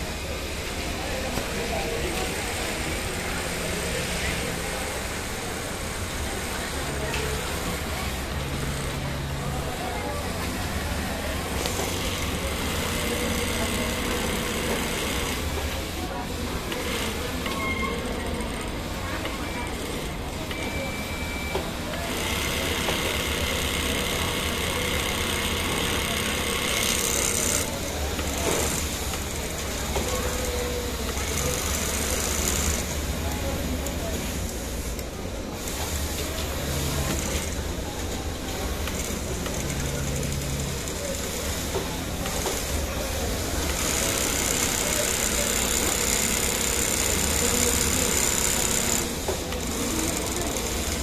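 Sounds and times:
sewing machine running: 0:10.7 - 0:15.8, 0:16.6 - 0:20.7, 0:22.0 - 0:33.2, 0:35.6 - 0:37.6, 0:38.3 - 0:51.0.

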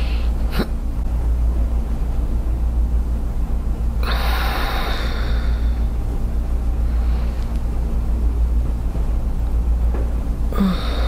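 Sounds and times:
low steady hum: 0:00.0 - 0:11.0
person exhaling: 0:10.5 - 0:11.0.

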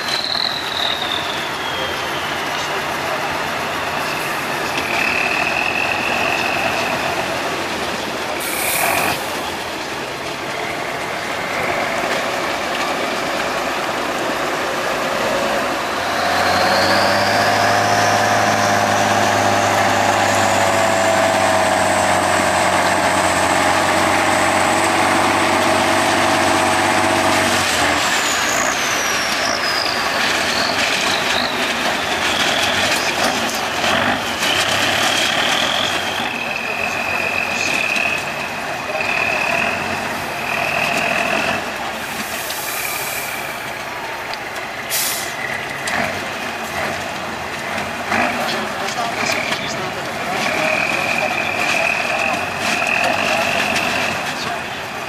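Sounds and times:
truck diesel engine revving: 0:00.0 - 0:55.0
air hiss: 0:08.4 - 0:09.1, 0:42.2 - 0:43.6, 0:44.9 - 0:45.4.

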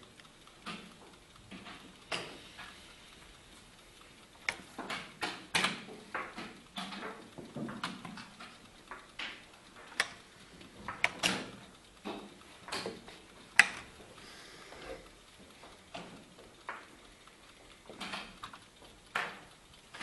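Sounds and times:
chess clock buttons clicking: 0:04.4 - 0:10.3, 0:10.9 - 0:14.0.

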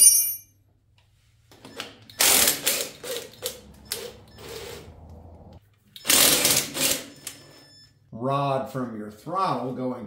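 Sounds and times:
cordless power ratchet bursts: 0:02.2 - 0:04.9, 0:06.0 - 0:07.1.

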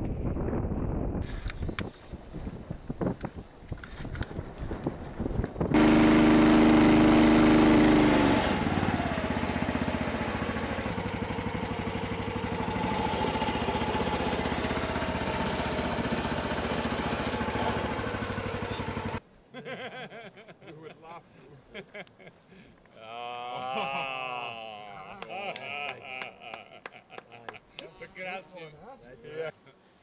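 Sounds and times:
outboard motor running: 0:05.7 - 0:19.2.

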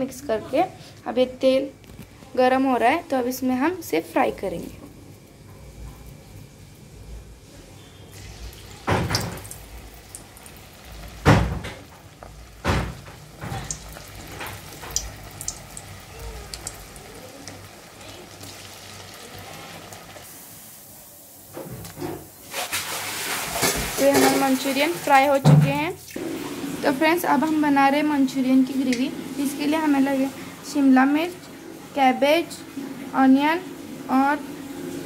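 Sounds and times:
food frying in hot oil: 0:04.1 - 0:35.0.

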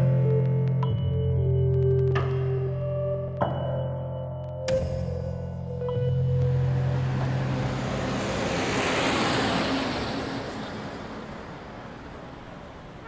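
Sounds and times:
bus passing by: 0:06.0 - 0:13.0.

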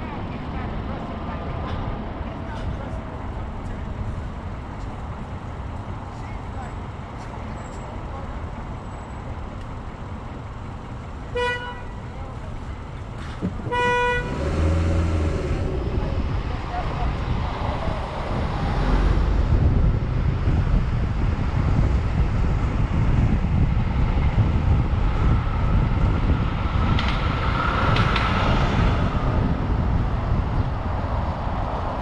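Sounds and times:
passing vehicles rumble: 0:00.0 - 0:32.0
wind buffeting microphone: 0:12.3 - 0:32.0.

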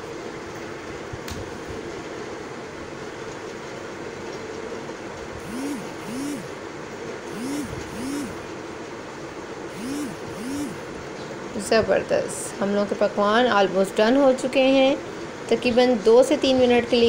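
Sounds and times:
short rising and falling tones: 0:05.4 - 0:06.6, 0:07.3 - 0:08.5, 0:09.7 - 0:11.0.

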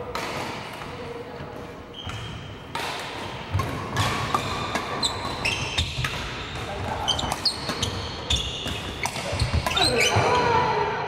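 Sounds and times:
racket hitting shuttlecock: 0:00.0 - 0:00.9, 0:02.0 - 0:10.5
shoe squeaks: 0:01.9 - 0:02.5, 0:04.9 - 0:10.4.

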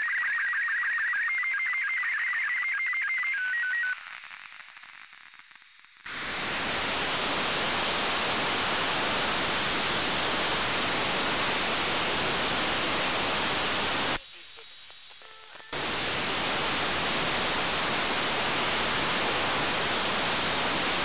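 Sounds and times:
radio receiver hiss: 0:03.0 - 0:21.0
warbling radio tones: 0:06.1 - 0:21.0.

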